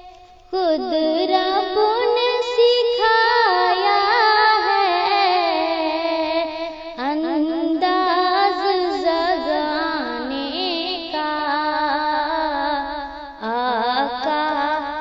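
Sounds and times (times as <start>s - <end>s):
woman singing: 0.0s - 15.0s.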